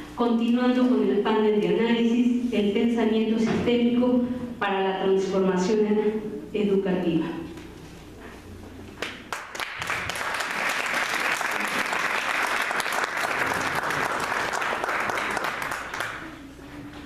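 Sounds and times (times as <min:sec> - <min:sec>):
audience clapping: 0:09.0 - 0:16.4.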